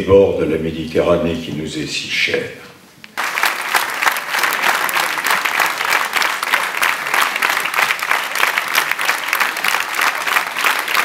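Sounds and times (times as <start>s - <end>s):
large audience applauding: 3.2s - 11.0s.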